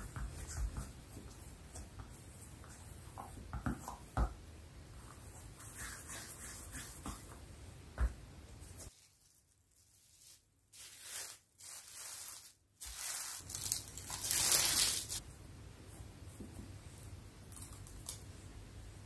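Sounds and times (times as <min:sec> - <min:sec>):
plastic film rustling and crinkling: 0:08.9 - 0:15.2.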